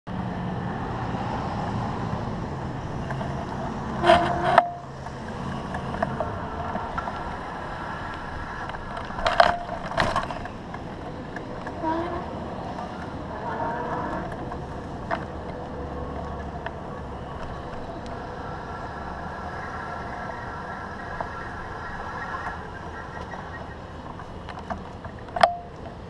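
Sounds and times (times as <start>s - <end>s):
tyres and wind rumbling: 0.1s - 26.0s.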